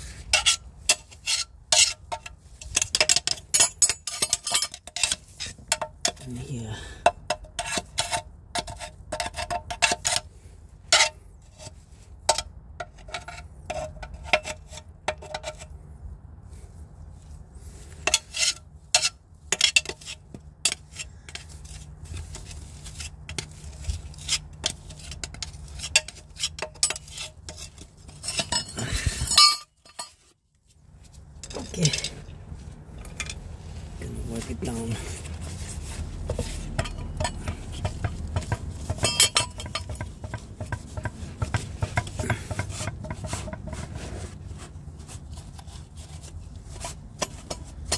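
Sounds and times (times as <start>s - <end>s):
metal tool scraping and clinking: 0.3s - 6.3s, 18.0s - 21.8s, 24.1s - 30.4s, 31.4s - 32.3s, 33.0s - 33.5s, 35.1s - 43.8s.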